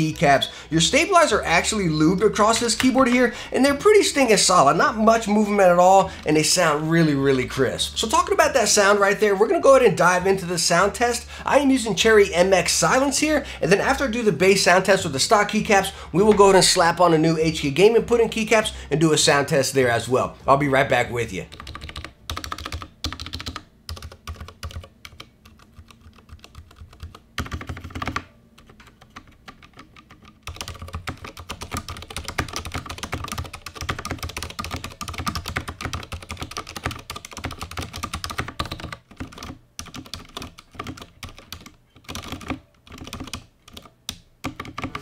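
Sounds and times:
mechanical keyboard typing: 21.5s - 45.0s.

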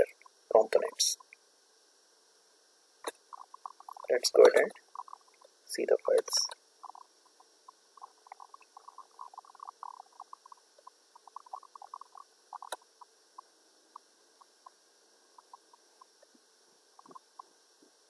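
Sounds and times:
computer mouse clicks: 8.0s - 12.8s.

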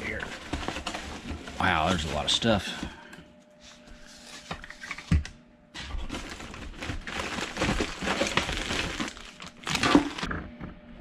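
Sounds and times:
cables being handled: 6.0s - 10.2s
plastic packaging crinkling: 6.0s - 10.3s.

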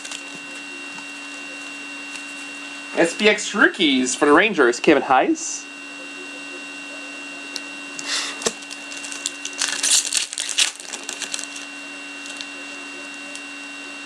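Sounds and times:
foil wrapper crinkling and tearing: 0.0s - 1.3s, 8.0s - 13.5s
low electrical hum: 0.0s - 14.0s.

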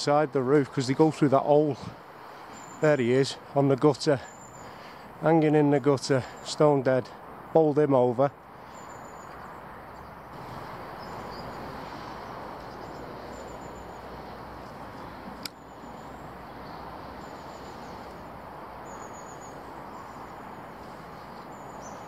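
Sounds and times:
outdoor background noise: 0.0s - 22.0s
small birds chirping: 0.6s - 7.0s, 7.6s - 22.0s
sharp click: 15.4s - 15.6s.

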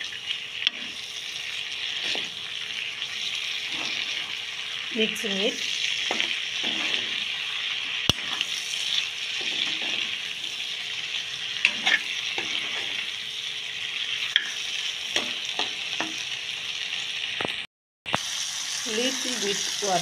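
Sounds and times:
metal spatula scraping pan: 0.0s - 1.1s, 1.8s - 2.4s, 3.0s - 4.8s, 5.6s - 10.7s, 11.6s - 13.2s
food sizzling in oil: 0.0s - 20.0s.

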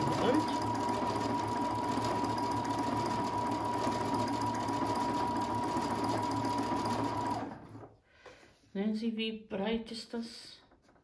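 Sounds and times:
sewing machine running: 0.0s - 7.8s.

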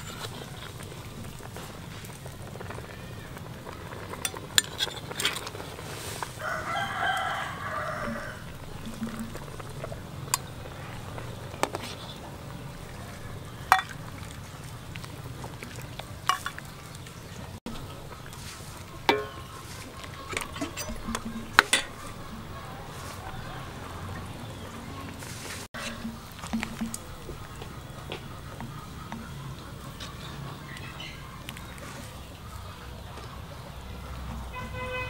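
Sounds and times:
rooster crowing: 6.4s - 8.6s, 22.2s - 24.6s
steel ladle clinking on wok: 13.7s - 14.0s, 19.1s - 19.5s, 20.4s - 22.5s.

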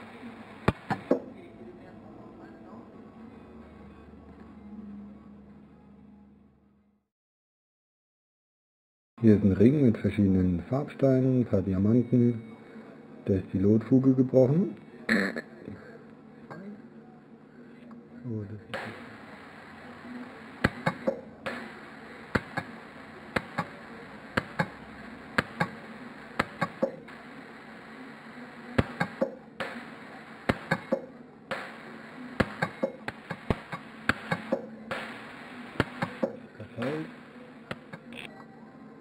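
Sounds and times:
steady hiss: 18.8s - 37.4s.

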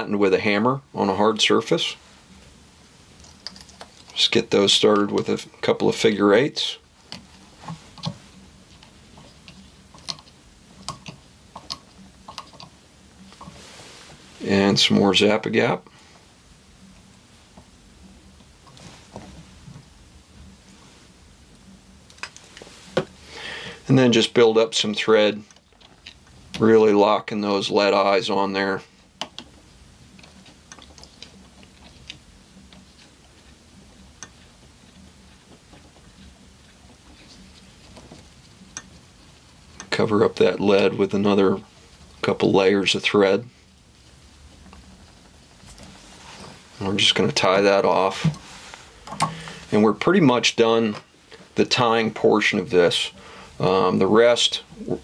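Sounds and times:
low steady hum: 0.0s - 55.0s
small clicks and ticks: 8.8s - 13.5s.

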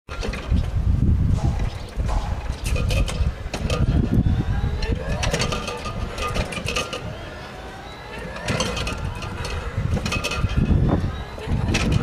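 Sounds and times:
electric motor whining: 3.3s - 12.0s.

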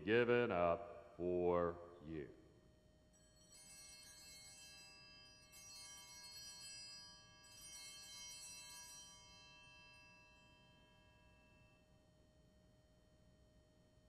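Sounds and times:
altar bells ringing: 3.2s - 11.8s.

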